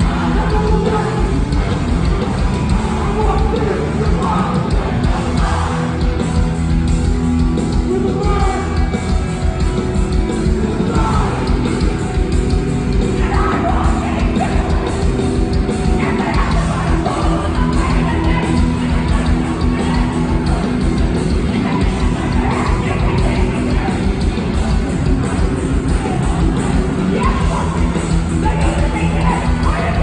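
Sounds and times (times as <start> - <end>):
punk band playing live: 0.0 - 30.0
shouted vocals: 2.6 - 6.2, 10.7 - 11.8, 13.1 - 14.9, 15.9 - 24.5, 25.2 - 30.0.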